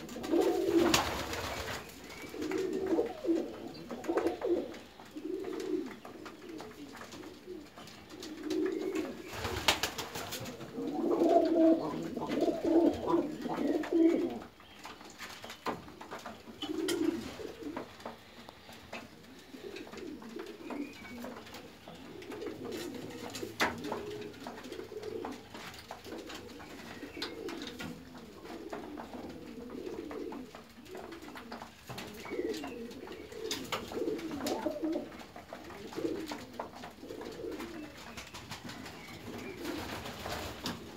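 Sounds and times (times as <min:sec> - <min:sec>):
pigeons cooing: 0:00.0 - 0:40.9.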